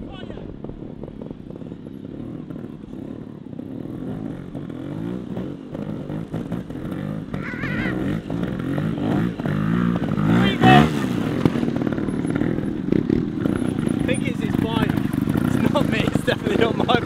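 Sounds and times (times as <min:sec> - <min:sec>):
motorcycle engines revving: 0:00.0 - 0:17.0.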